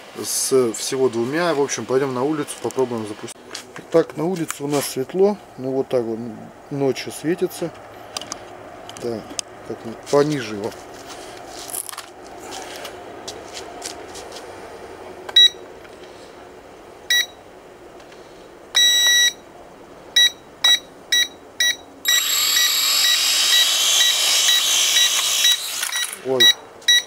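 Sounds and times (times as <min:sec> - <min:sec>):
short electronic beeps: 0:15.4 - 0:15.6, 0:17.1 - 0:17.4, 0:18.8 - 0:19.4, 0:20.2 - 0:27.0
toy drone motors whirring: 0:22.1 - 0:26.4.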